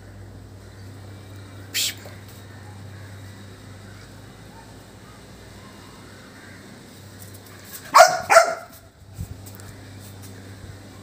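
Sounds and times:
puppy barking: 7.8 - 8.8.

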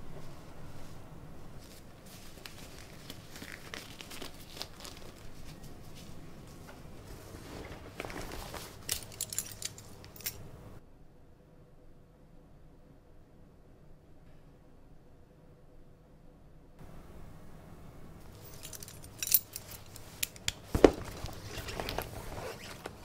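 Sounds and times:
plastic glove crinkling: 1.5 - 10.1.

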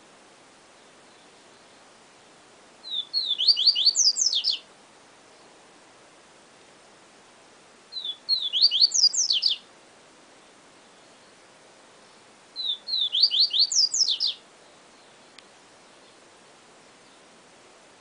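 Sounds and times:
bird singing whistled phrases: 2.8 - 4.6, 7.9 - 9.6, 12.6 - 14.4.

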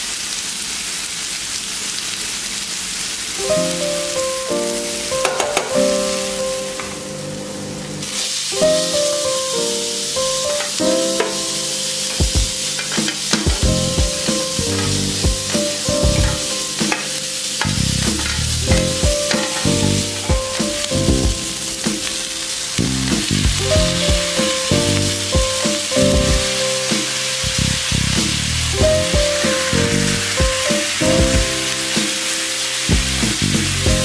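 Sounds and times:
steak sizzling in a pan: 0.1 - 34.0
background music: 3.5 - 7.6, 8.6 - 34.0
metal spoon scraping a pan: 12.7 - 13.5, 14.2 - 20.8.

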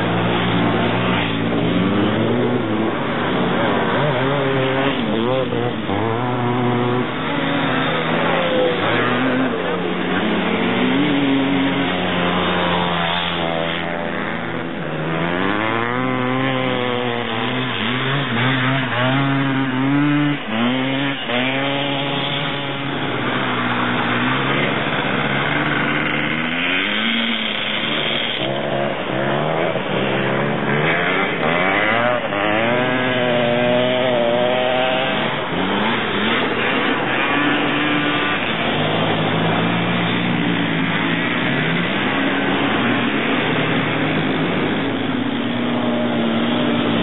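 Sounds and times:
three-wheeler engines revving: 0.0 - 47.0.

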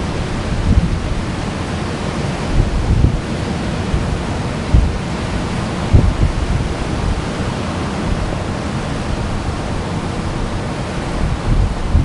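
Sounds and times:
ocean surf washing in: 0.0 - 12.0
low thump on microphone: 4.7 - 5.0, 5.9 - 6.4.

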